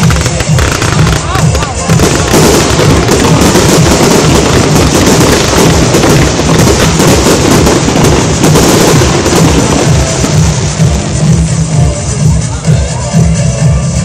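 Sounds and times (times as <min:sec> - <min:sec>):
aerial firework shells bursting: 0:00.0 - 0:11.5.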